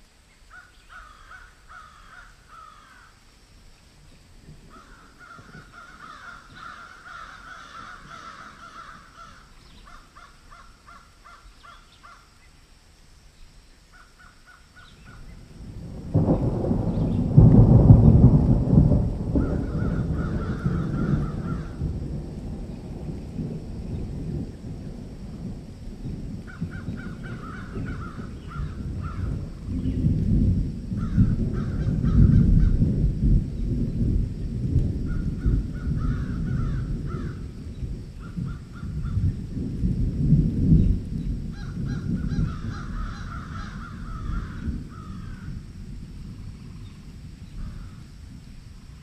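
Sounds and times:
birds calling: 0.2s - 3.1s, 4.1s - 12.6s, 13.3s - 15.6s, 19.3s - 21.9s, 26.0s - 30.1s.

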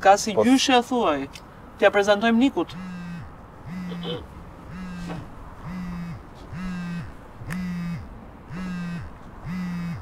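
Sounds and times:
mobile phone buzzing ring tone: 2.7s - 10.0s.

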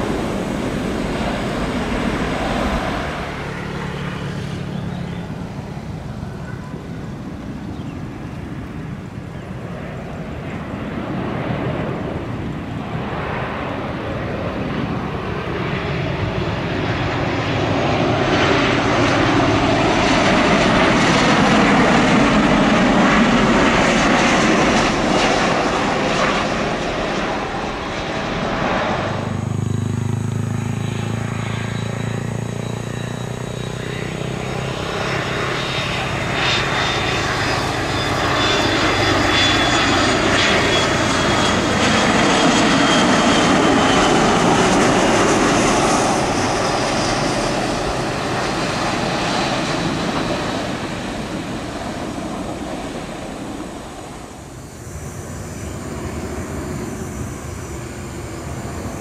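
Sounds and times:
airliner landing rumble: 0.0s - 59.0s
jet engines roaring: 0.0s - 59.0s
high whine falling in pitch: 24.8s - 59.0s.

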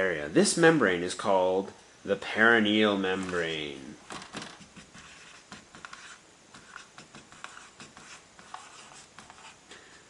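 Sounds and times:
marker scratching on whiteboard: 4.4s - 9.6s.

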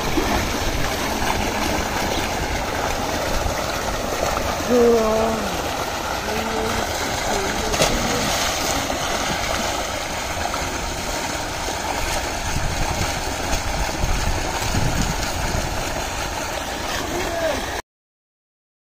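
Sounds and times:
water jet gushing into tank: 0.0s - 17.8s
splash of person jumping in: 7.2s - 9.8s.

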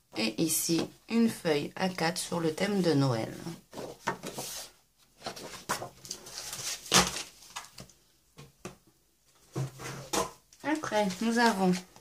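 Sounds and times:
paper sheets rustling: 2.8s - 7.9s, 10.7s - 12.0s.

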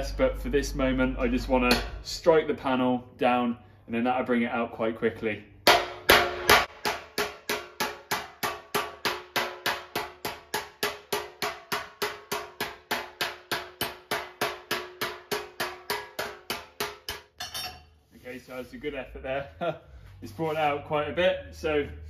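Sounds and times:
metal slapper striking steel panel: 1.6s - 2.1s, 5.7s - 17.3s.

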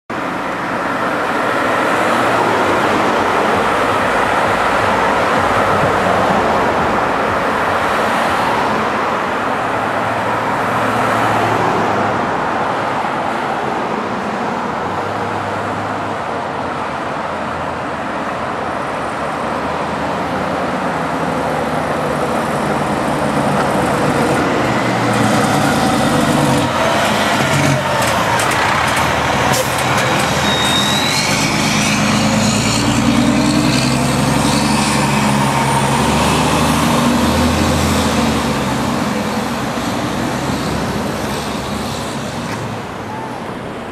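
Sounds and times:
road traffic: 0.1s - 43.9s
fire engine driving past: 19.1s - 43.9s.

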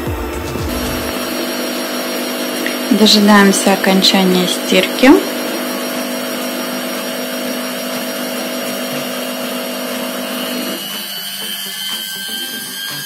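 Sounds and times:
drum rushing noise: 0.0s - 1.5s
washing machine motor hum: 0.0s - 12.1s
high motor whine: 0.0s - 13.0s.

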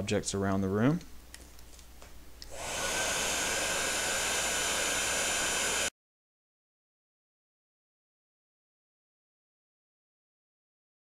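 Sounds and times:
heat gun blowing air with whine: 2.5s - 5.9s.

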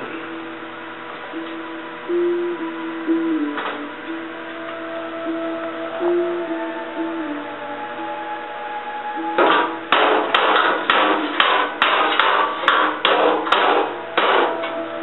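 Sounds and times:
sharp strikes on steel: 9.4s - 14.7s.

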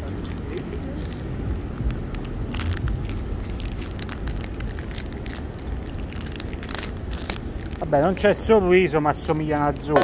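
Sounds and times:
low rumble of street noise: 0.0s - 10.0s
plastic wrapper crinkling: 0.3s - 8.2s.

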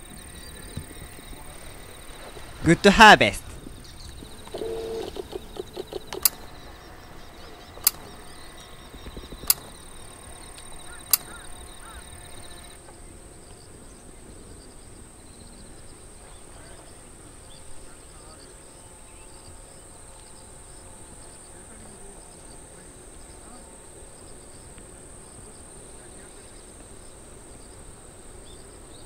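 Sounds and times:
high insect trilling: 3.6s - 12.8s
sharp clicks: 4.1s - 6.7s, 7.7s - 12.8s.

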